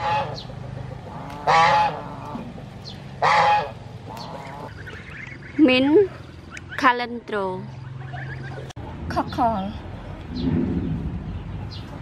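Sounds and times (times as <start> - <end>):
poultry calls: 0.0 - 7.0, 7.7 - 8.7.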